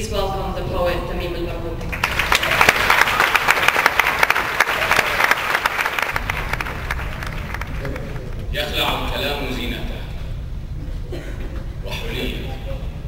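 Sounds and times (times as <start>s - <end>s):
audience applauding: 1.9s - 8.4s.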